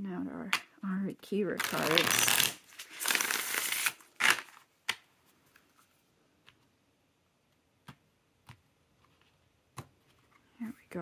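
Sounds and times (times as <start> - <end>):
cards riffle-shuffled: 1.6 - 5.0.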